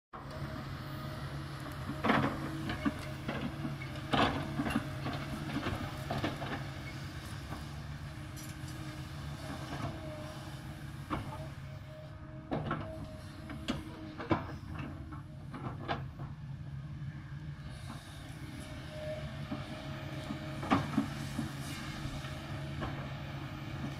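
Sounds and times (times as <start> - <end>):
excavator diesel engine running: 0.2 - 23.9.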